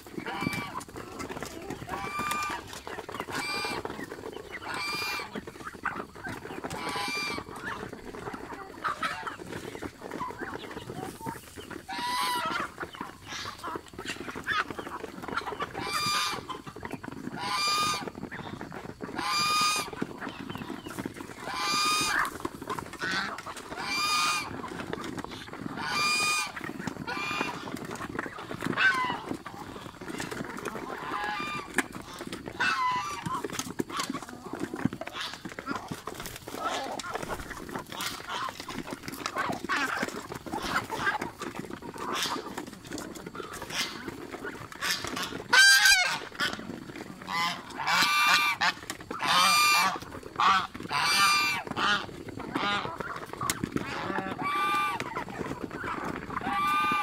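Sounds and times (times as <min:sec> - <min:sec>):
goose honking: 0:00.2 - 0:02.6, 0:03.2 - 0:04.0, 0:04.6 - 0:07.9, 0:10.2 - 0:14.7, 0:15.3 - 0:16.6, 0:17.4 - 0:20.3, 0:21.4 - 0:22.3, 0:23.0 - 0:24.7, 0:25.3 - 0:29.9, 0:30.8 - 0:34.1, 0:44.8 - 0:46.6, 0:47.2 - 0:57.0.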